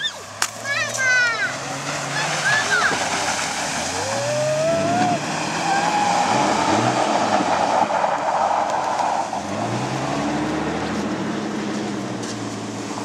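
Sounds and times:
car engine revving: 0:00.0 - 0:13.0
tyres hissing through slush: 0:01.3 - 0:09.9.

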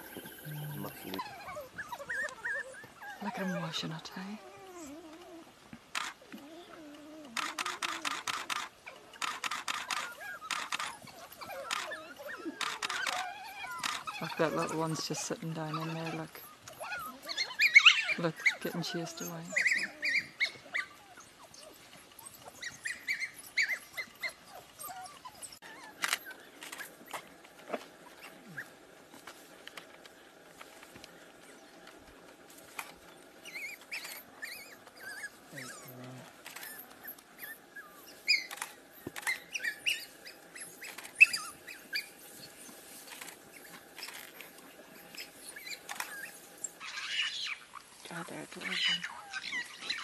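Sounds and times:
wild dogs twittering and squeaking: 0:00.0 - 0:50.0
sharp clicks: 0:05.9 - 0:06.2, 0:07.4 - 0:11.0.

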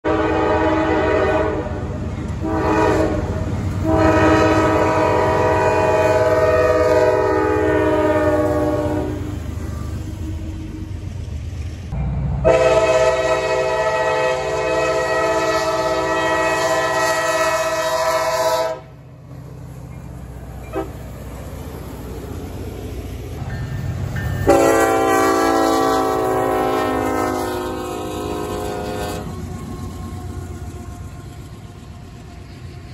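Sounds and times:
locomotive air horn blasts: 0:00.0 - 0:10.5, 0:12.4 - 0:19.0, 0:20.7 - 0:21.0, 0:24.4 - 0:29.4
train rumbling: 0:00.0 - 0:32.9.

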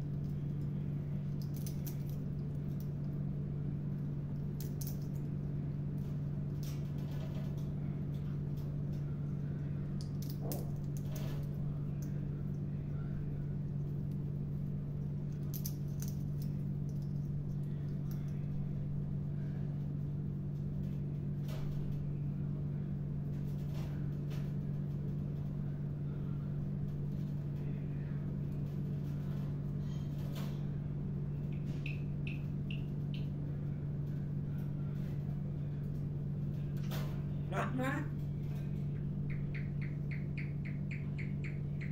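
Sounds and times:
steady low hum: 0:00.0 - 0:41.9
soft high chirps: 0:31.5 - 0:33.3, 0:39.3 - 0:41.9.

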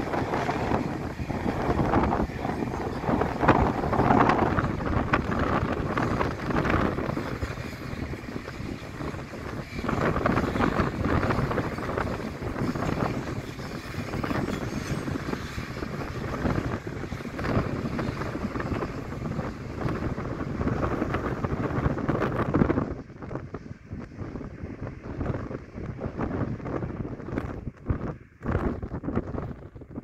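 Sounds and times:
train wheels clattering on rails: 0:00.0 - 0:22.8
wind buffeting microphone: 0:00.0 - 0:30.0.

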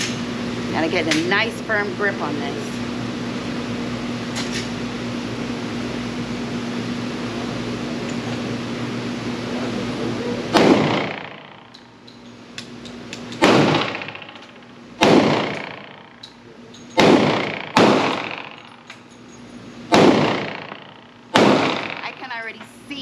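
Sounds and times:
pistol shots echoing indoors: 0:10.5 - 0:11.6, 0:13.4 - 0:16.2, 0:17.0 - 0:18.6, 0:19.9 - 0:22.0.

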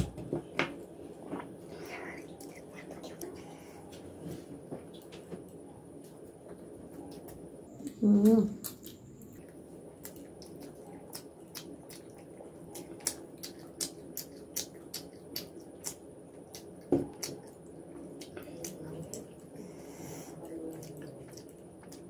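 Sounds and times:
wet chewing and lip smacking: 0:07.1 - 0:22.0
sharp mouth clicks: 0:12.8 - 0:17.5.

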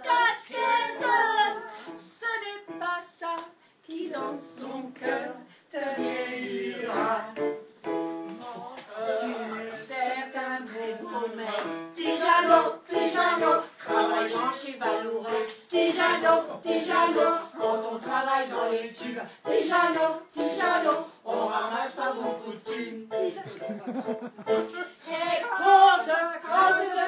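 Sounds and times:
voices singing together: 0:00.0 - 0:02.2, 0:03.9 - 0:07.6, 0:08.3 - 0:23.8, 0:24.5 - 0:27.0.

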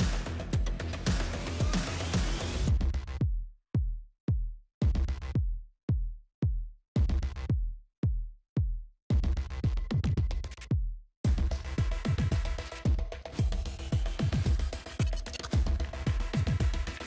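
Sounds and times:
electronic music with drum machine: 0:00.0 - 0:03.4, 0:09.1 - 0:17.0
deep kick drum thuds: 0:00.0 - 0:14.7.

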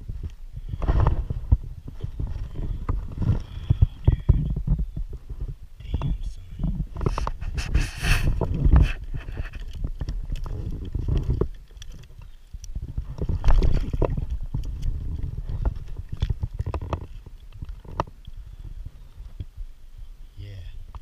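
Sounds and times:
clothing rubbing on camera housing: 0:06.8 - 0:11.5.

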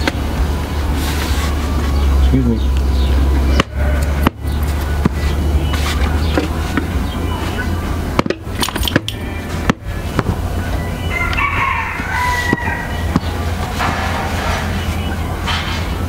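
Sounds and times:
steady low rumble: 0:00.0 - 0:16.0
rooster crowing: 0:10.9 - 0:13.4.

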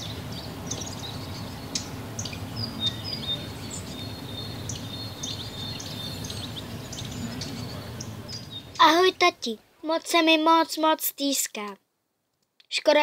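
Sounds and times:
woodland birds chirping: 0:00.0 - 0:09.6
low background rumble: 0:00.0 - 0:09.8.

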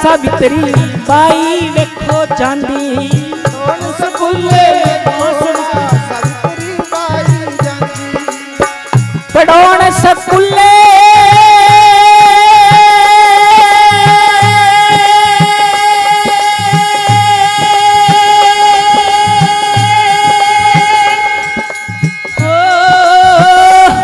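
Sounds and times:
harmonium: 0:00.0 - 0:24.0
man singing long high note: 0:09.3 - 0:24.0.

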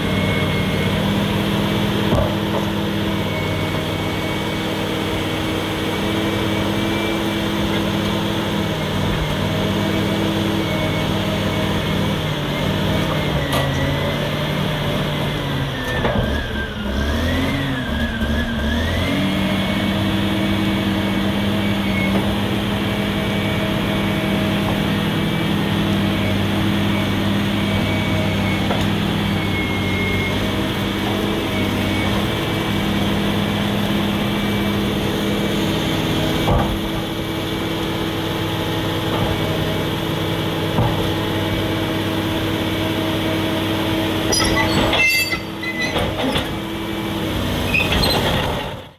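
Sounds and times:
bulldozer diesel engine running: 0:00.0 - 0:48.9.

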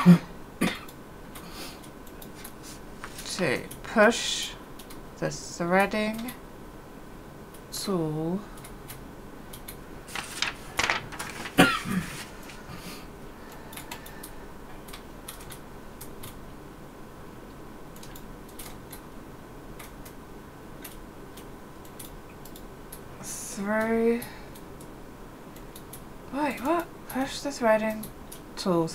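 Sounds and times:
small clicks and rustles: 0:09.6 - 0:12.6.

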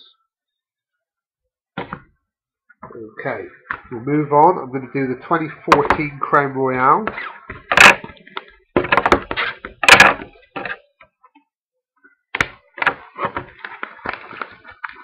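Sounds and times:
cardboard clicks and rustles: 0:12.4 - 0:15.0
packaging crackling and rustling: 0:13.0 - 0:15.0.

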